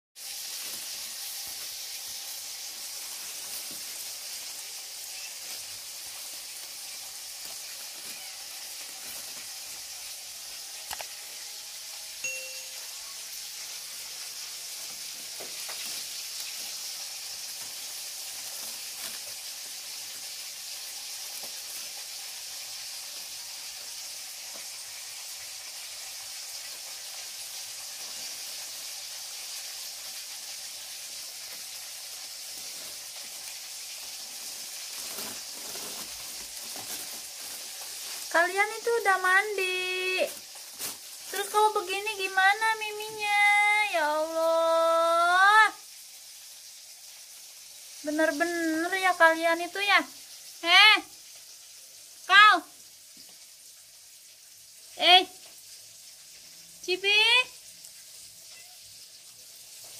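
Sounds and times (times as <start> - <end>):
plastic bag crinkling: 0.2 - 11.5, 12.8 - 22.5, 31.2 - 43.2.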